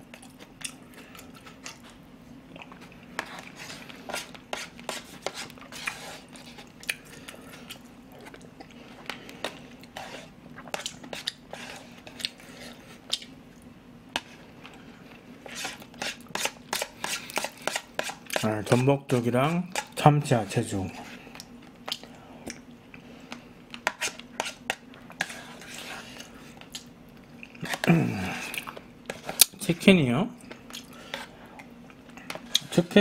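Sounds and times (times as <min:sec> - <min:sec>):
chewing and wet mouth sounds: 0:00.0 - 0:04.4, 0:05.5 - 0:11.4, 0:13.0 - 0:13.7, 0:21.3 - 0:23.1, 0:26.1 - 0:27.8, 0:28.4 - 0:29.6, 0:30.4 - 0:32.8
spoon scraping plastic bowl: 0:03.2 - 0:06.6, 0:15.4 - 0:18.9, 0:23.8 - 0:26.3.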